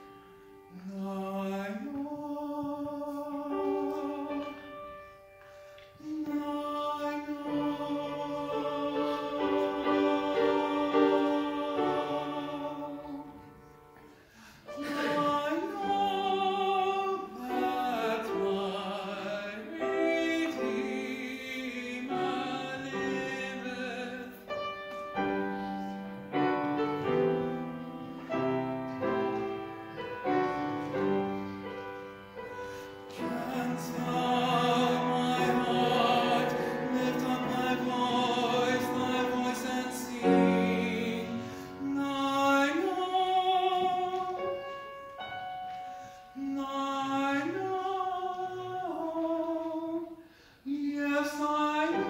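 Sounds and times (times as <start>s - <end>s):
piano accompaniment: 0.0s - 50.2s, 50.8s - 52.0s
tenor singing operatic style: 0.6s - 52.0s.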